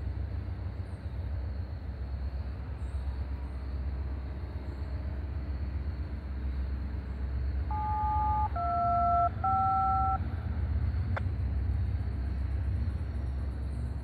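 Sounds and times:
freight train rumbling on trestle: 0.0s - 7.7s, 10.2s - 14.0s
touch-tone beeps: 7.7s - 10.2s.

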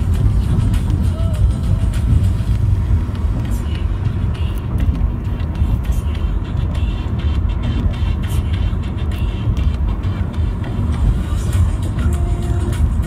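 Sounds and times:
car road and engine rumble: 0.0s - 13.0s
faint music: 0.0s - 13.0s.

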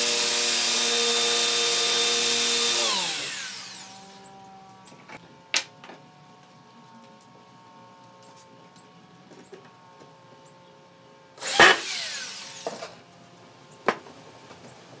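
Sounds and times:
electric drill driving a screw: 0.0s - 4.9s, 11.4s - 13.0s.

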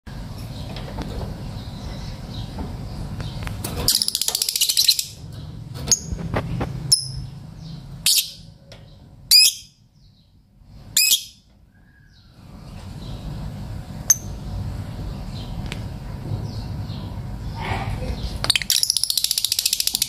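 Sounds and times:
lovebirds chattering: 0.5s - 6.2s, 6.9s - 10.4s, 16.4s - 20.0s
lovebirds shrill chirps: 3.9s - 5.2s, 8.0s - 8.5s, 9.3s - 9.8s, 10.9s - 12.3s, 18.4s - 20.0s.

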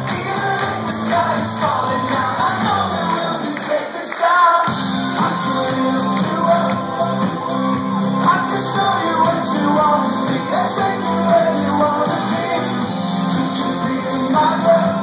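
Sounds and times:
electric guitar: 0.0s - 3.7s, 4.7s - 15.0s
keyboards: 0.0s - 15.0s
two people singing: 0.0s - 15.0s
held bass line: 4.7s - 15.0s.

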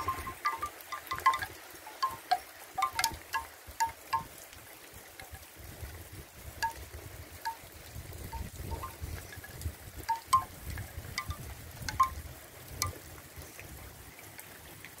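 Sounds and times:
short ringing pings: 0.0s - 4.3s, 10.1s - 10.5s
wind rumble on microphone: 5.3s - 14.0s.

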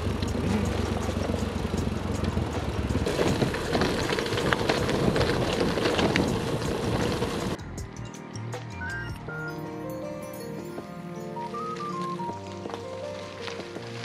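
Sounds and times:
bike clicks and rattles: 0.0s - 7.6s
tyres rolling on wet track: 0.0s - 7.6s.

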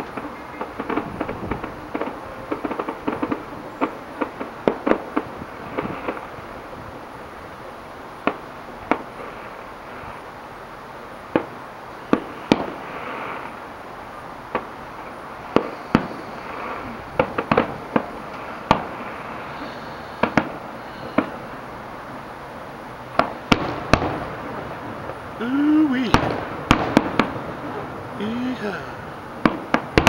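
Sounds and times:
background hiss: 0.0s - 30.0s
fireworks bangs: 0.0s - 30.0s.

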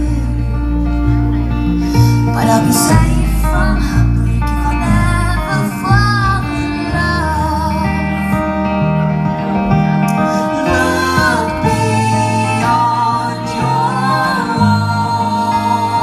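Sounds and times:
woman singing with vibrato: 2.2s - 8.4s, 10.3s - 16.0s.

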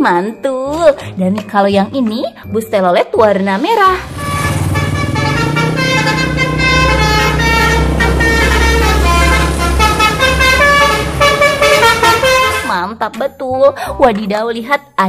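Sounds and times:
bus horns tooting melody: 3.7s - 13.0s
bus engines rumbling: 3.8s - 12.7s.

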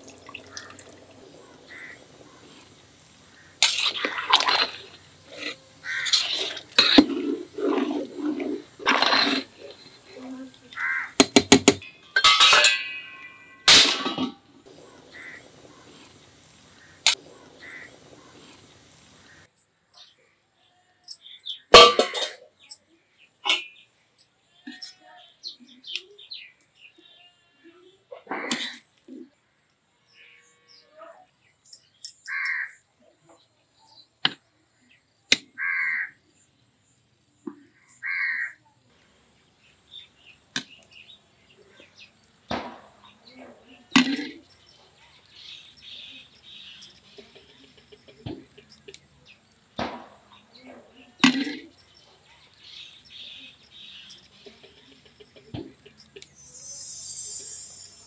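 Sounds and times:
crow cawing: 1.7s - 2.0s, 5.8s - 6.2s, 10.8s - 11.2s, 17.6s - 17.9s, 32.3s - 32.8s, 35.6s - 36.2s, 38.0s - 38.6s
metal lid clattering on pot: 12.2s - 14.4s, 21.8s - 22.4s
spoon striking steel pot: 21.8s - 22.3s.

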